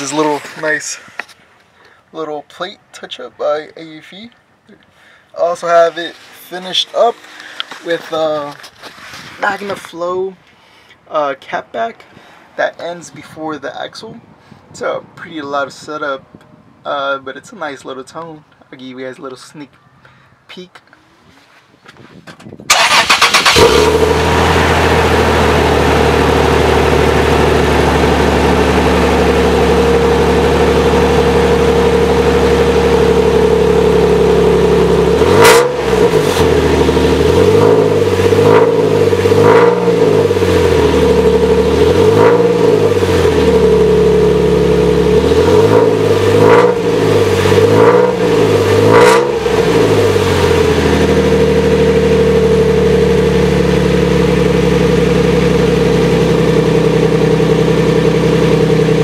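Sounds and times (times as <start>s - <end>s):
truck engine idling and revving: 22.7s - 59.0s.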